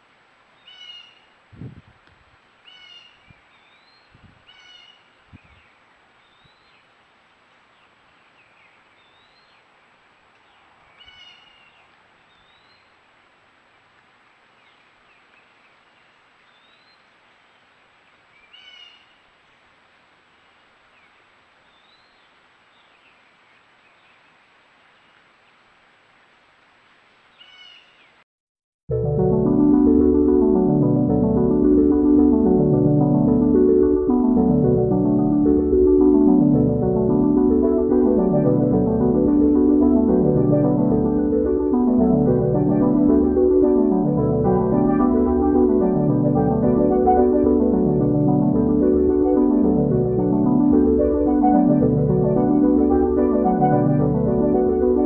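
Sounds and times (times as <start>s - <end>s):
background hiss: 0.0s - 28.2s
birds whistling: 0.6s - 1.3s, 2.7s - 5.6s.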